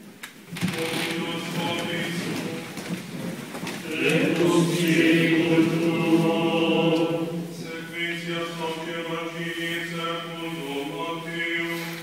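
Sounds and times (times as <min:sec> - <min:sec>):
chant in slow held notes: 0:03.8 - 0:11.9.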